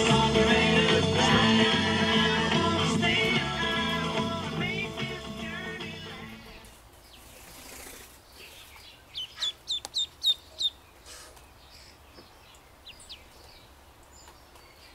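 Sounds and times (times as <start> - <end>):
duckling peeping: 6.3 - 13.6.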